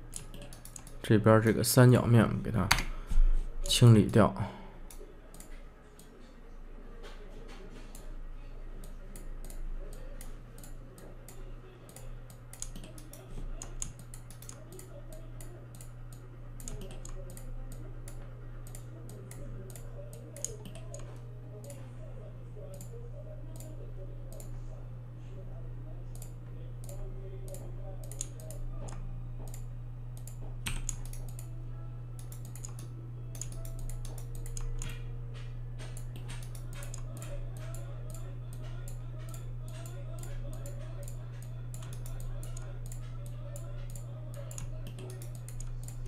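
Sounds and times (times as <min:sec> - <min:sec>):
low electrical hum: 0:00.0 - 0:46.0
mouse and keyboard clicks: 0:11.9 - 0:15.9, 0:16.6 - 0:17.5, 0:26.2 - 0:29.6, 0:30.2 - 0:31.5, 0:32.2 - 0:46.0.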